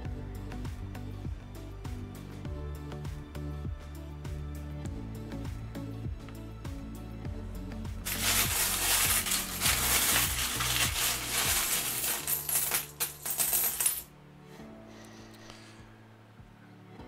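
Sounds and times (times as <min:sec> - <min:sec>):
coins clinking and jingling: 0:08.1 - 0:14.1.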